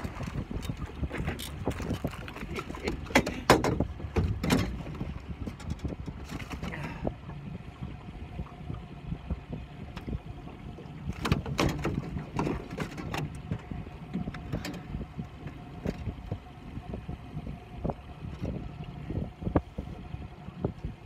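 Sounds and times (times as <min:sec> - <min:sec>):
knocks in a small boat: 0:00.0 - 0:07.1, 0:11.1 - 0:16.4
wind and water rumble: 0:00.0 - 0:21.0.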